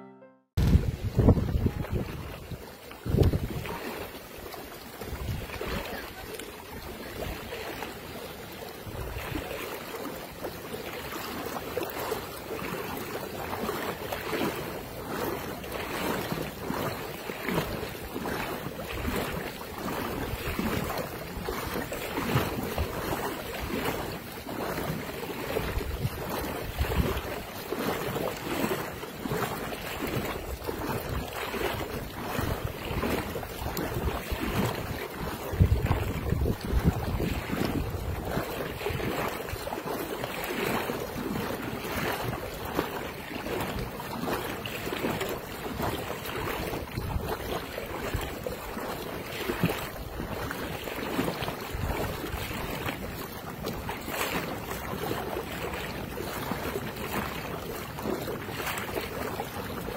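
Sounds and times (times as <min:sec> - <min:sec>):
floodwater rushing: 0:00.0 - 0:59.9
wind buffeting microphone: 0:00.6 - 0:07.8, 0:24.8 - 0:28.8, 0:29.4 - 0:43.8, 0:44.8 - 0:54.4.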